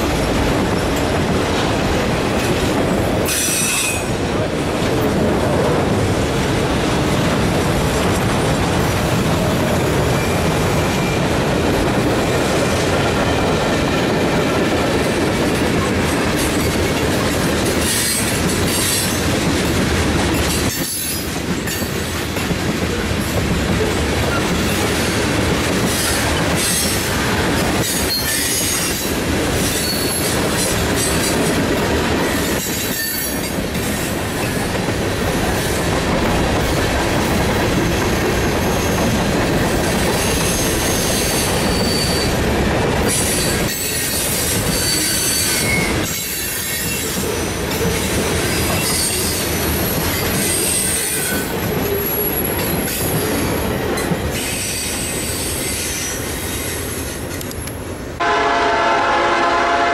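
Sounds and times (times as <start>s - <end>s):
freight train wheels rumbling: 0.0s - 59.9s
high wheel squeals: 40.2s - 42.5s, 43.2s - 47.2s.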